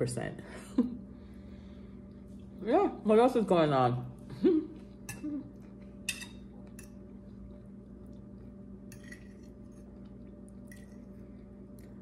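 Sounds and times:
low room hum: 0.0s - 12.0s
cutlery and dishes clinking: 8.9s - 9.5s.

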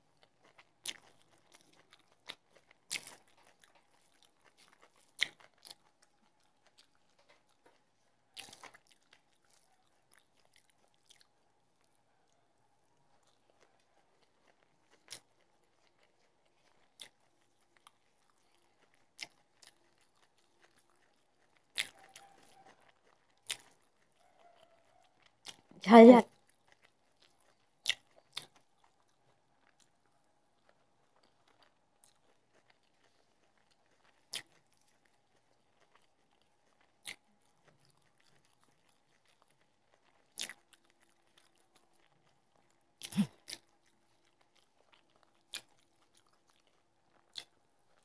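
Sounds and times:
faint chewing: 0.0s - 48.0s.

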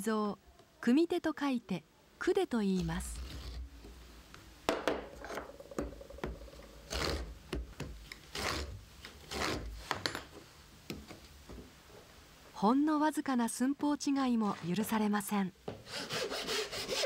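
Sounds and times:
tool scratching across wood: 6.6s - 7.4s, 15.9s - 17.0s.

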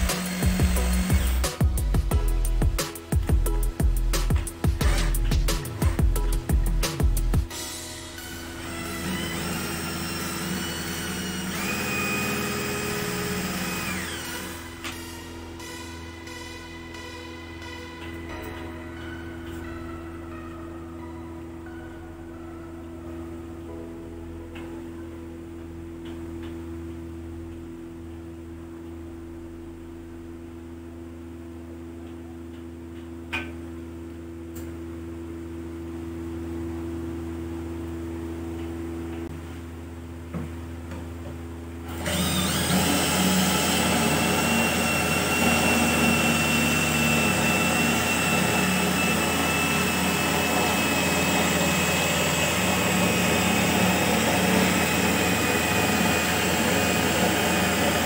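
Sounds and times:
power drill whining: 0.0s - 1.6s, 4.8s - 6.0s, 8.2s - 17.1s, 41.9s - 58.0s.

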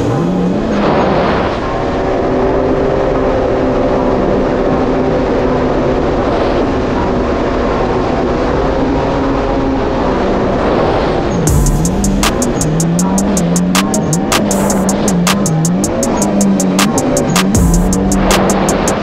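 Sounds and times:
jet ski engine running: 10.8s - 19.0s.

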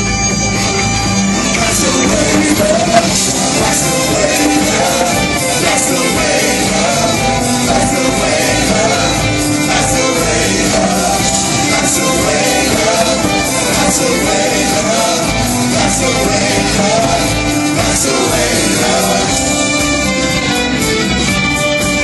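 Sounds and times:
live band with violins: 0.0s - 22.0s
voices singing: 1.3s - 20.8s.

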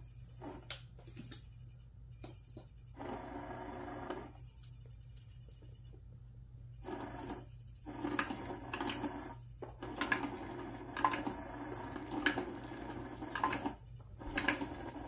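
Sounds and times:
toy motor whirring: 6.8s - 15.0s.

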